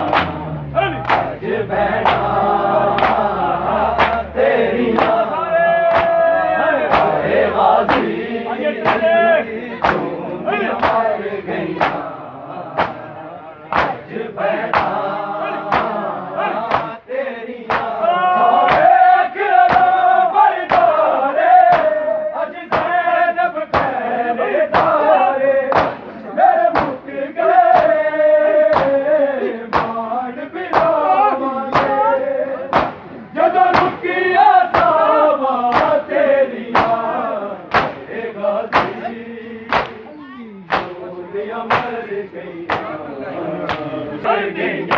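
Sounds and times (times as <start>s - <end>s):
men chanting a lament: 0.0s - 44.9s
hands slapping bare chests: 0.1s - 0.4s, 1.0s - 1.3s, 3.0s - 3.3s, 4.0s - 4.3s, 4.9s - 5.2s, 5.9s - 6.2s, 6.9s - 7.2s, 10.8s - 11.0s, 11.8s - 12.0s, 12.8s - 13.0s, 13.7s - 14.0s, 14.7s - 15.0s, 15.7s - 16.0s, 16.7s - 17.0s, 17.7s - 18.0s, 19.6s - 19.9s, 20.7s - 20.9s, 25.7s - 26.0s, 26.7s - 27.0s, 28.7s - 29.0s, 29.7s - 30.0s, 32.7s - 33.0s, 35.7s - 35.9s, 36.7s - 37.0s, 37.7s - 38.0s, 38.7s - 39.0s, 39.7s - 40.0s, 40.7s - 41.0s, 41.7s - 42.0s, 42.7s - 42.9s.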